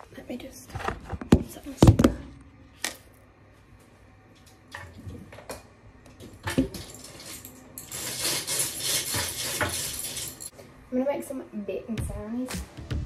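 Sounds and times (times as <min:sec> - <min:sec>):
tap water running: 0:06.1 - 0:10.5.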